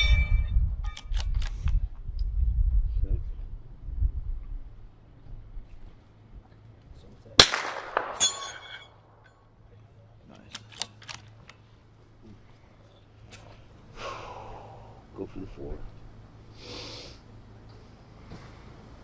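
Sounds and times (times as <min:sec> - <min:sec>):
rifle shot: 0:07.4 - 0:09.2
sharp crack: 0:07.4 - 0:09.4.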